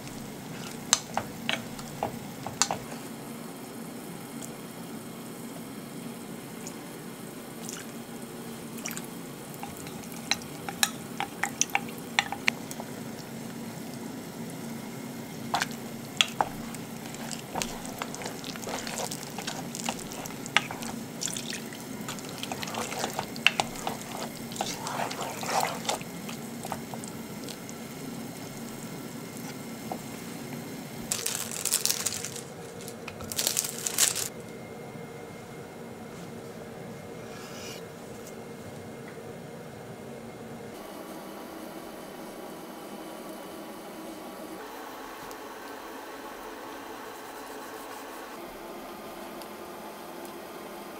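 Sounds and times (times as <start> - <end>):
spatula stirring stew in pan: 0.0 - 3.1, 9.5 - 14.0, 15.3 - 30.4
plastic wrappers crinkling: 15.5 - 27.7, 31.0 - 34.3.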